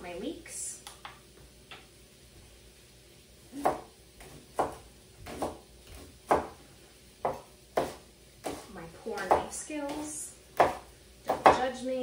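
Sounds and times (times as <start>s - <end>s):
knife chopping on cutting board: 3.6s - 6.6s, 7.2s - 11.7s.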